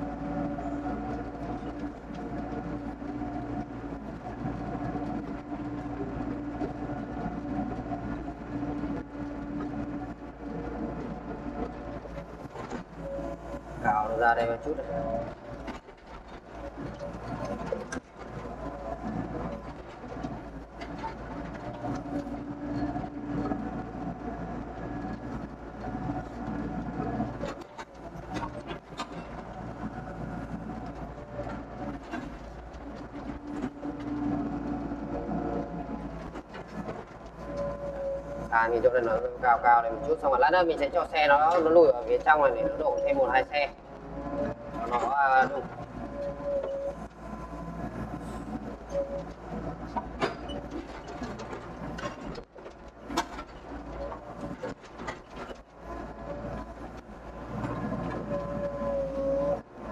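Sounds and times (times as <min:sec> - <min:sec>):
excavator diesel engine droning: 0:00.0 - 0:59.9
clanks and knocks: 0:49.2 - 0:55.8.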